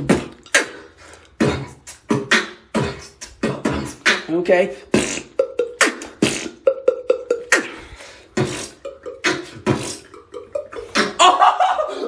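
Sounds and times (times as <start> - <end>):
person beatboxing: 0.0 - 12.0.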